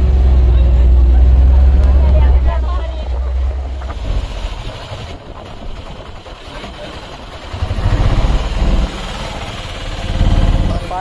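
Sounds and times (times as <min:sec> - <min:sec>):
engine rumbling: 0:00.0 - 0:11.0.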